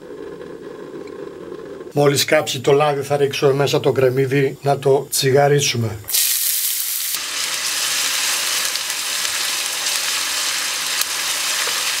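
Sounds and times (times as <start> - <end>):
onion sizzling in oil: 6.1 - 12.0.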